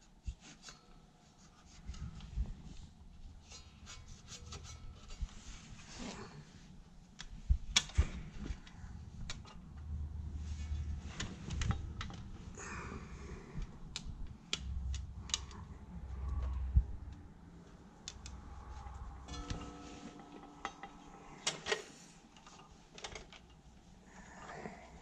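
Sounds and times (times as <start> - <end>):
rustling handling noise: 13.9 - 24.2.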